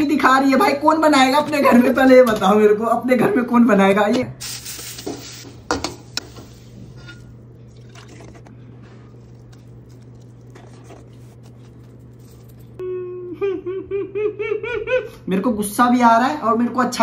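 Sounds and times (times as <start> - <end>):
steady low hum: 4.2 - 15.3
wet squishing of stirring: 7.0 - 12.8.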